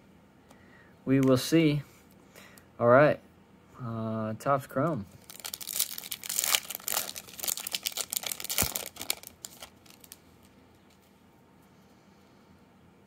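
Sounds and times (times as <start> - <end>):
foil wrapper tearing and crinkling: 5.2 - 10.2.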